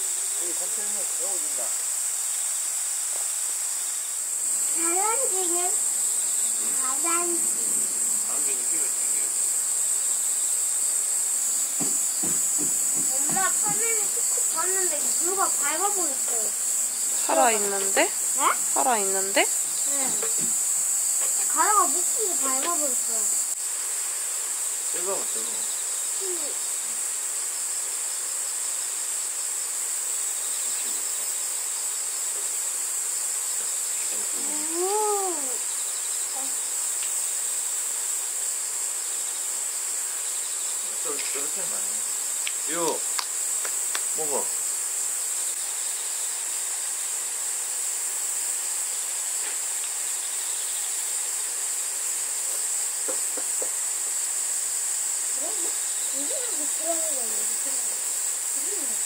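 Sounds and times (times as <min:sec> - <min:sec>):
insects chorus shrilling: 0:00.0 - 0:59.0.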